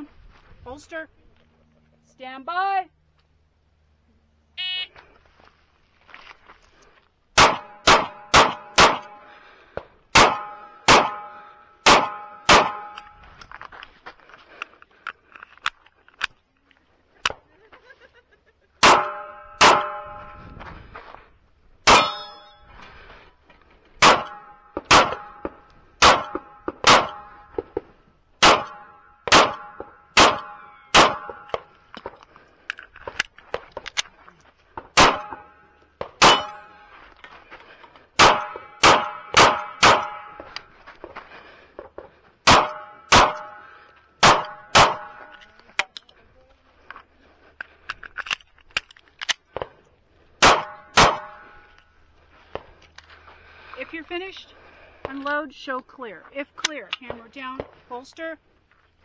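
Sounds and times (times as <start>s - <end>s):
shot timer beep: 4.6s - 4.9s
pistol shots: 7.4s - 9.2s, 10.1s - 13.0s, 18.8s - 20.0s, 21.8s - 22.3s, 24.0s - 27.4s, 28.4s - 31.6s, 34.9s - 35.5s, 36.2s - 36.6s, 38.2s - 40.4s, 42.4s - 45.3s, 50.4s - 51.5s
steel targets ringing: 21.9s - 22.7s, 36.2s - 36.8s.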